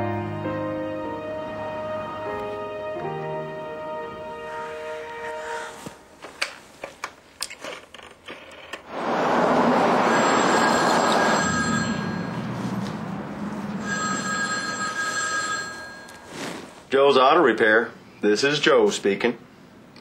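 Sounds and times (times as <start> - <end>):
car passing with tyre noise: 8.8 - 15.4
telephone ringing: 10.0 - 12.6, 13.8 - 16.5.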